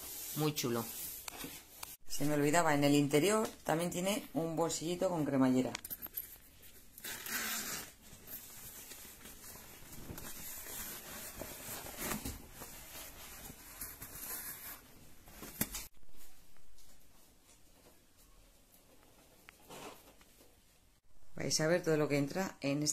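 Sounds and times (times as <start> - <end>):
fabric rustling: 5.9 - 20.9
zipper being pulled open: 7.0 - 8.4.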